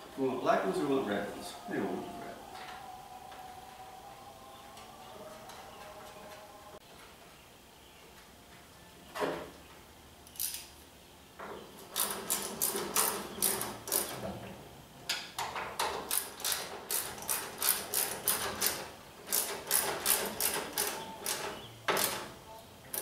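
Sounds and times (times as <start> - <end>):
ratchet clicking: 16.1 - 22.2.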